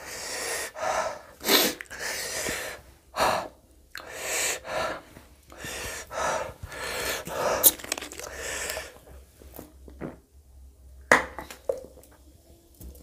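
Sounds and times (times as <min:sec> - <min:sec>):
man panting hissing breaths: 0:00.0 - 0:09.0
drinking from plastic bottle: 0:06.7 - 0:09.0.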